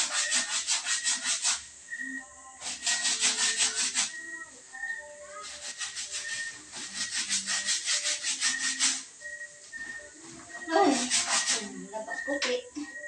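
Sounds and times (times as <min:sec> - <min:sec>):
wet clothes scrubbed by hand: 0:10.8 - 0:11.8.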